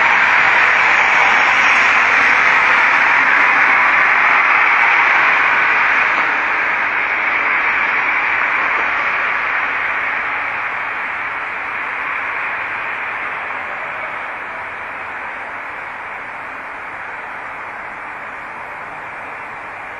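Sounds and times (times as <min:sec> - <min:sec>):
steady rushing hiss: 0:00.0 - 0:19.9.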